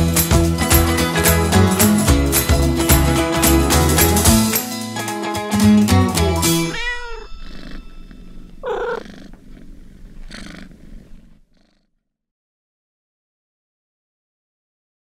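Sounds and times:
music: 0.0 - 6.8
cat meowing: 6.6 - 11.3.

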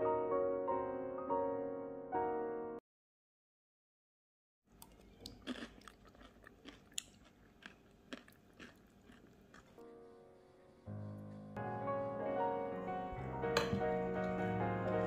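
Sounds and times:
chewing crunchy food: 4.7 - 10.8.

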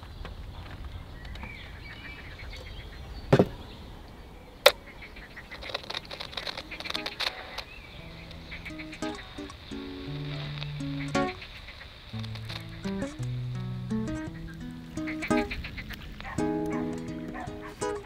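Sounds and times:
radio static crackling: 5.2 - 18.0
faint bird chirps: 6.4 - 13.5.

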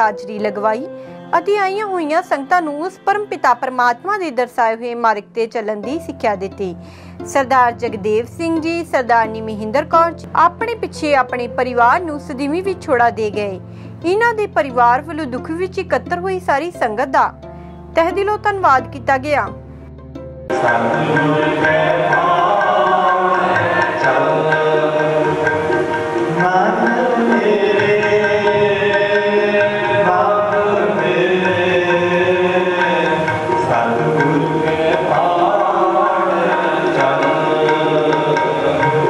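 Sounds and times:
steady held notes: 17.8 - 39.0
tabla: 20.4 - 39.0
person singing hymn: 20.5 - 39.0.

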